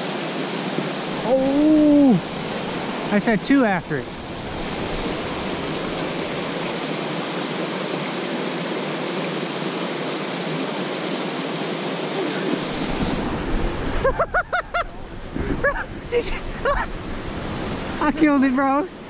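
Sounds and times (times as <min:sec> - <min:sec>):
waterfall rushing: 0:00.0 - 0:19.0
wind rumble on microphone: 0:12.6 - 0:18.4.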